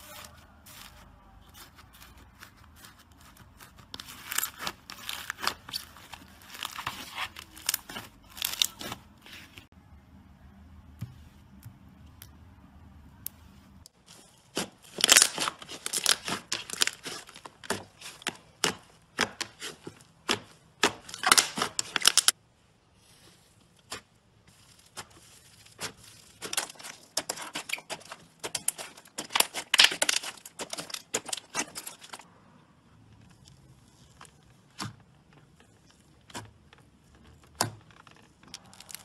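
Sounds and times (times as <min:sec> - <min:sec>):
slime clicking and crackling: 0:01.6 - 0:09.0, 0:14.5 - 0:22.4, 0:23.8 - 0:32.2, 0:35.6 - 0:39.0.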